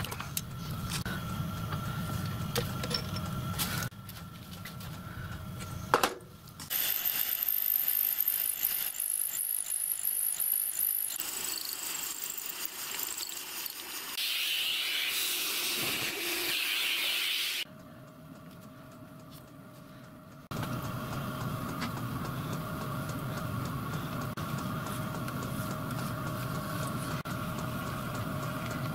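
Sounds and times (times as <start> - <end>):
hiss: 11.2 - 17.6.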